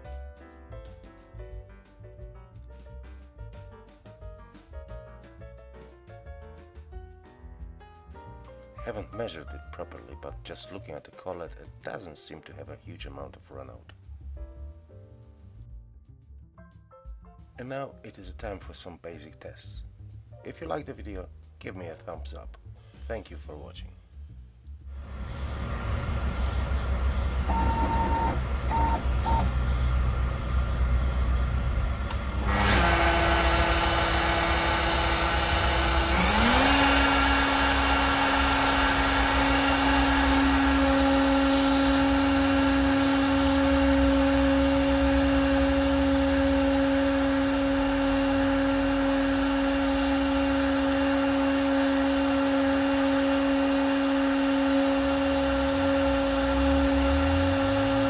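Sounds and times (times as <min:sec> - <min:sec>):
router motor whining: 0:25.0 - 0:58.0
short beeps: 0:27.5 - 0:29.5.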